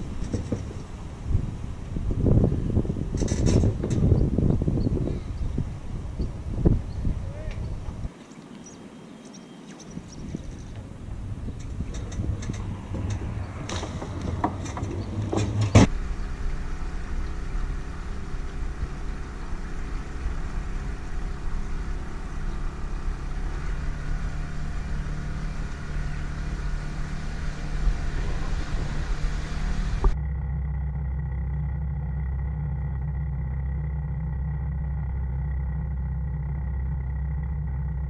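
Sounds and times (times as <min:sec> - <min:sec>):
boat knocks and clicks: 0:00.0 - 0:01.1, 0:10.2 - 0:15.9
outboard motor running: 0:10.2 - 0:38.0.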